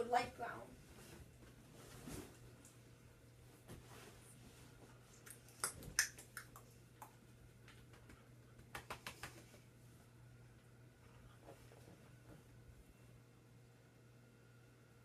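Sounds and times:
faint low hum: 0:00.0 - 0:15.0
sharp clicks and taps: 0:05.6 - 0:09.5.

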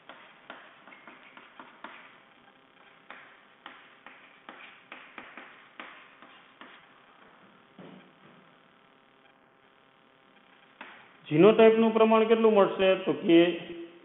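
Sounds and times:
chalk writing on chalkboard: 0:00.0 - 0:02.2, 0:03.1 - 0:06.8.

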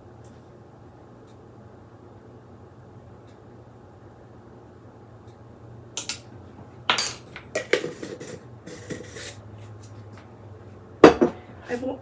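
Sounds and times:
kitchen utensils clinking: 0:06.9 - 0:08.4.

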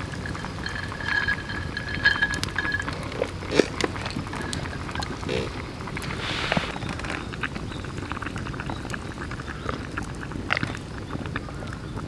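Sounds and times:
glass clinks and knocks: 0:00.0 - 0:05.2.

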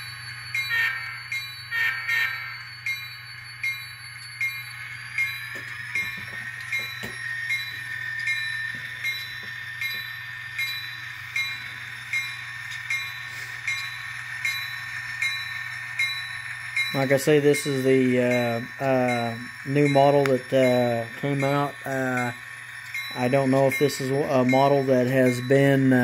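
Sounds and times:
diesel engine sound: 0:00.0 - 0:26.0
locomotive bell ringing: 0:00.0 - 0:26.0.

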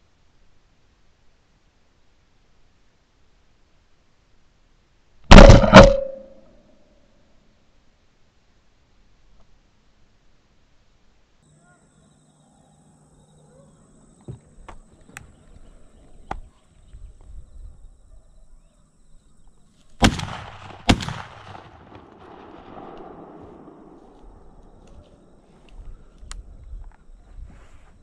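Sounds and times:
shotgun blasts: 0:05.3 - 0:06.4, 0:20.0 - 0:24.6
faint sharp cracks: 0:19.8 - 0:27.0.

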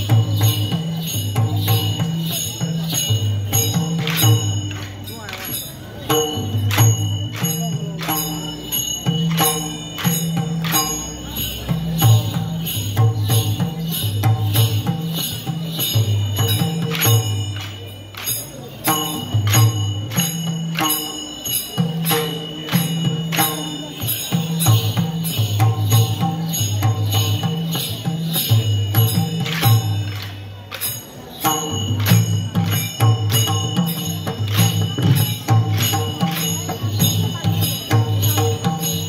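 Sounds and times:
drum beating: 0:00.0 - 0:39.0
jingling metallic strikes: 0:00.0 - 0:39.0.

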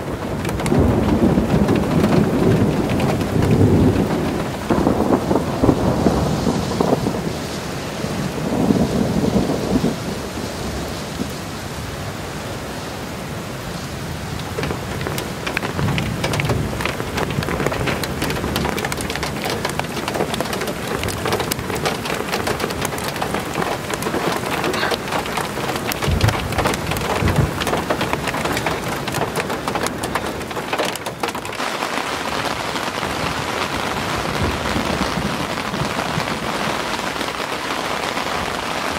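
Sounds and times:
low rolls of thunder: 0:00.0 - 0:11.5, 0:14.4 - 0:37.6
rain falling: 0:00.0 - 0:38.9
raindrops striking close by: 0:00.0 - 0:38.9.

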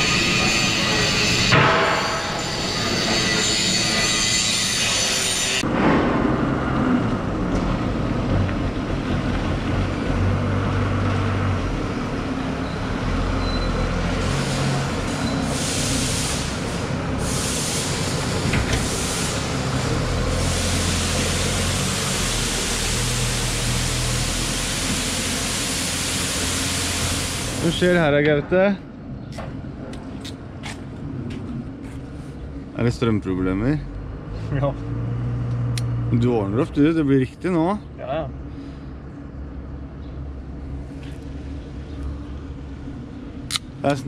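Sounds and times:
workshop noise hiss: 0:14.0 - 0:28.8.

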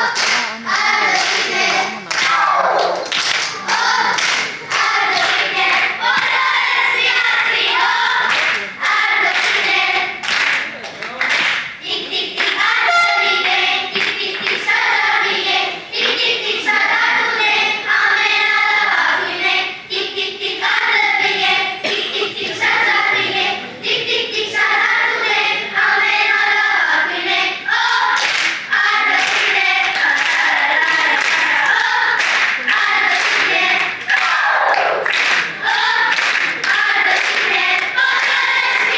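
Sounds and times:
children's choir singing: 0:00.0 - 0:10.6, 0:11.3 - 0:38.9
hand claps: 0:00.1 - 0:00.5, 0:02.1 - 0:06.4, 0:09.3 - 0:11.7, 0:28.2 - 0:28.6, 0:29.2 - 0:38.4.

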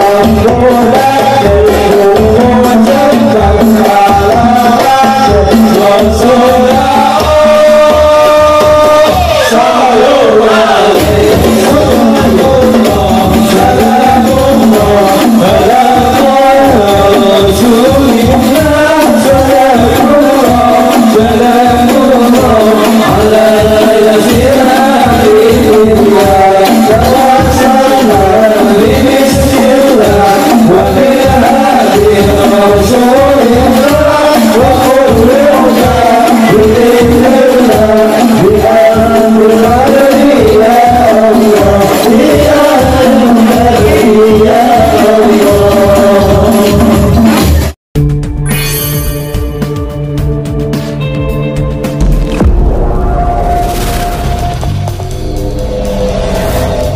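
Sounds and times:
men singing devotional song: 0:00.0 - 0:47.4
frame drums: 0:00.0 - 0:52.8
deep drum strokes: 0:51.9 - 0:56.9.

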